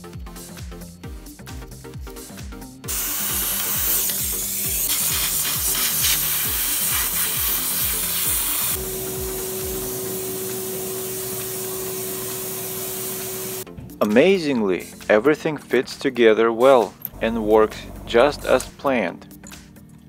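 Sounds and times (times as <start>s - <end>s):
background music with beat: 0.0s - 11.9s
shop vacuum hissing: 2.9s - 13.7s.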